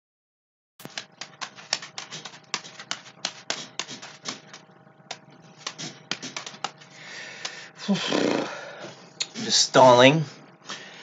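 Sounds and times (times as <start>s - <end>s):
juggling balls smacking hands: 0.9s - 6.8s.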